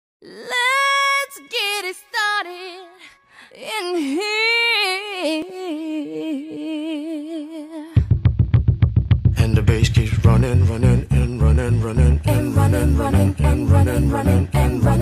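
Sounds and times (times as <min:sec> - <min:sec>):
woman singing with vibrato: 0:00.2 - 0:08.0, 0:12.3 - 0:15.0.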